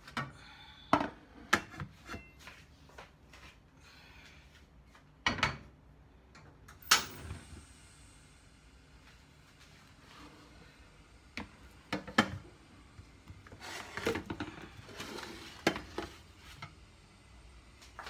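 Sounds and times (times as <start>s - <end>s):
pan scraping: 13.5s - 16.6s.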